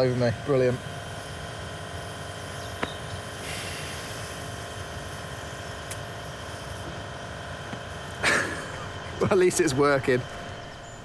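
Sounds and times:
pump running steadily: 0.0 - 11.0
rush of hiss: 3.3 - 5.4.

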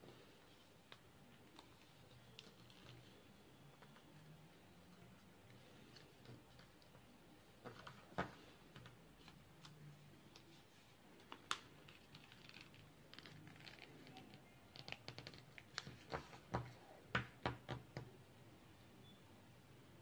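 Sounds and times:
paper being folded: 0.5 - 4.2, 10.3 - 16.4.

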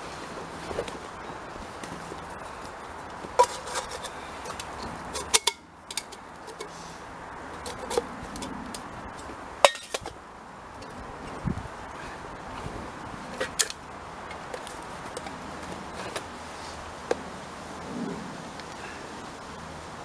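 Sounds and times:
camping gear clicking and clinking: 0.0 - 11.4, 12.1 - 16.4
steady background hiss: 0.0 - 20.0.

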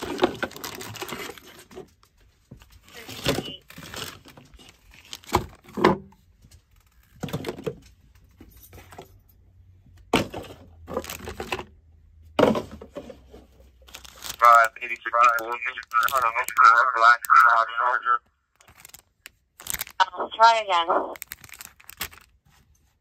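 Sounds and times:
plastic bag crinkling: 0.0 - 1.3, 13.9 - 16.6, 18.6 - 20.0, 21.2 - 22.4.

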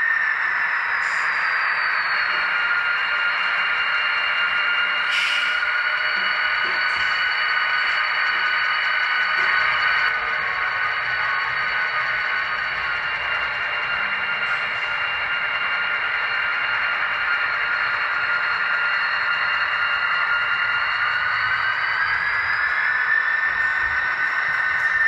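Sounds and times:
high whine: 0.0 - 25.0
model train rolling on track: 0.0 - 25.0.

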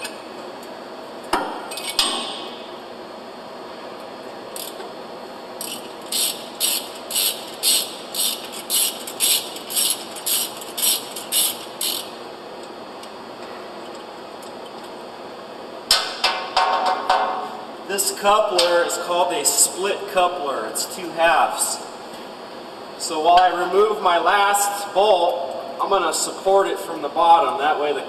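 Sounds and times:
ratchet wrench clicking: 5.6 - 12.1.

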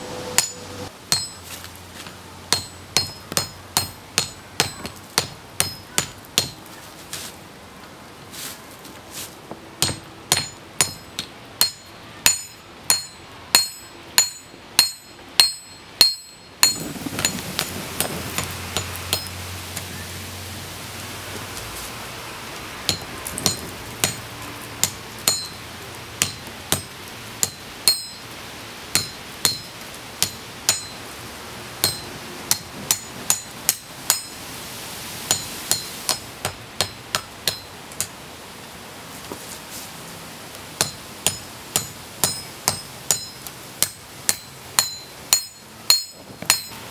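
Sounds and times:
steady background noise: 0.0 - 46.9
hammer blows on anvil ringing: 0.4 - 1.4, 9.8 - 17.4, 40.8 - 46.8.

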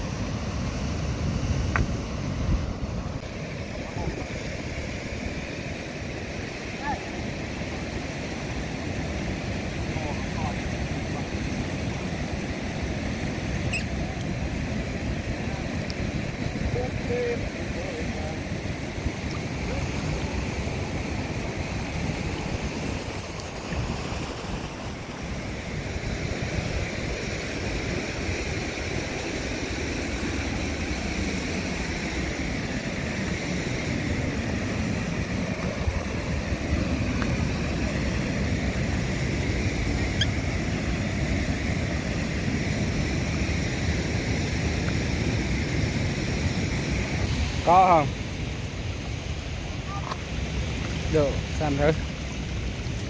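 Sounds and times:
moving water: 0.0 - 53.0
wind buffeting the microphone: 0.8 - 5.6.

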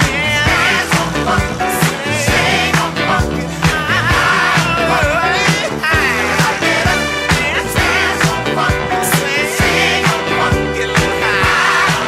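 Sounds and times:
funk music: 0.0 - 12.0.

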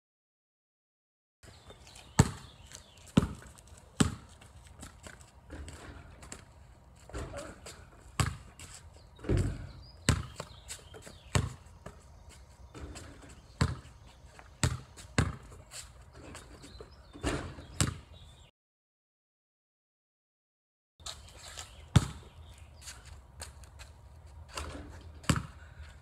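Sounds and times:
basketball bouncing on concrete: 2.0 - 6.5, 7.1 - 12.1, 12.7 - 15.6, 16.3 - 18.2, 21.9 - 22.4, 24.5 - 25.9.

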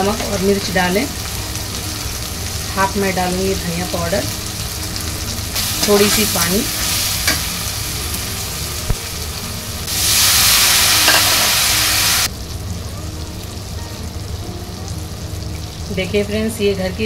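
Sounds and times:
masala sizzling in oil: 0.0 - 17.0.

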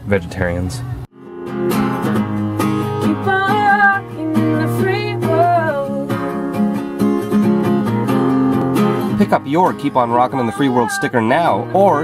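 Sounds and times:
strummed acoustic guitar: 1.1 - 12.0
woman singing: 3.0 - 6.5, 10.0 - 12.0.

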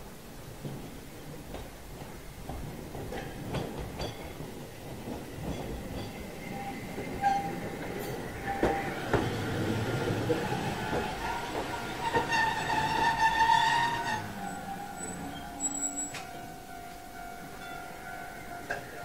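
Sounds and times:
tram rolling on rails: 0.0 - 19.0
wheel clacks over rail joints: 0.6 - 17.0
wheel squeals: 5.5 - 16.5.

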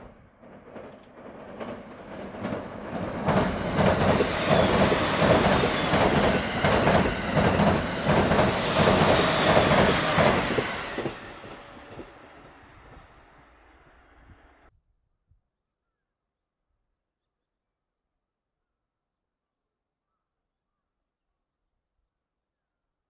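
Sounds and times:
train wheels clacking over rail joints: 0.0 - 13.3
train passing over steel bridge: 0.0 - 14.7.

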